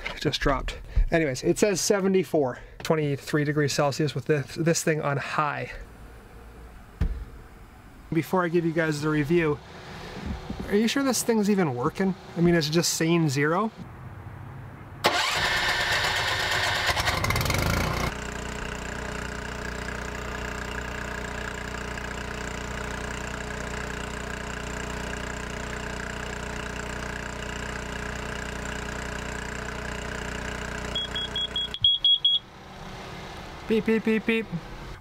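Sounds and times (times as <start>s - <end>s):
truck engine starting and revving: 15.0s - 18.3s, 28.6s - 35.0s
detector alarm beeping: 30.9s - 32.5s.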